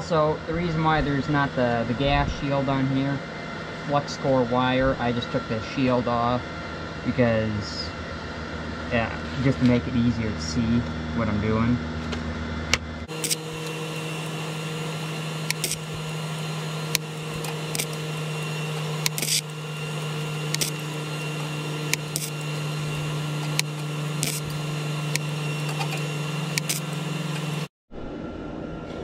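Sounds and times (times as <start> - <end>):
welder hum: 13.0 - 28.2
welding arc strikes: 13.1 - 27.7.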